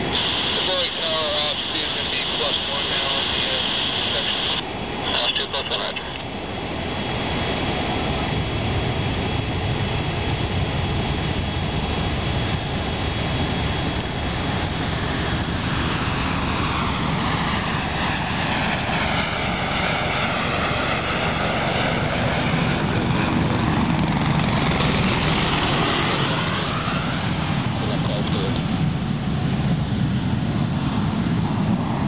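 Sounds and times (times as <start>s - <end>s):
faint steady whine: 0.0s - 32.0s
jet engines running: 0.0s - 32.0s.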